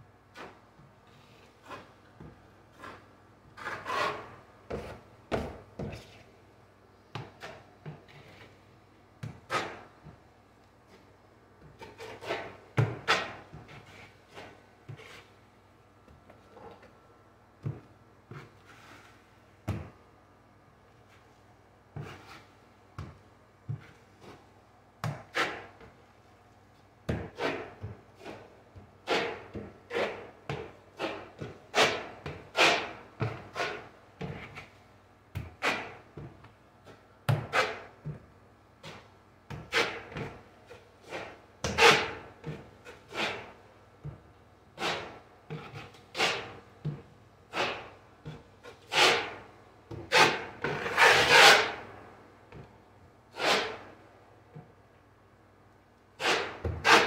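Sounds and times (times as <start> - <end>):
drywall knife scraping compound: 0.3 - 6.3, 7.2 - 8.6, 9.2 - 10.2, 10.9 - 15.4, 17.6 - 19.8, 22.0 - 26.0, 27.1 - 38.2, 38.8 - 52.0, 53.3 - 54.0, 56.2 - 57.0.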